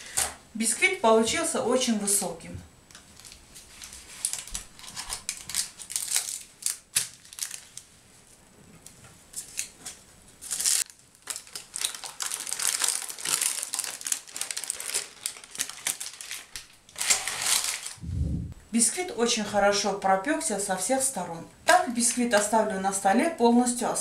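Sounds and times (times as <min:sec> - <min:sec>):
baking paper crinkling: 0:03.0 - 0:08.4, 0:09.3 - 0:18.0.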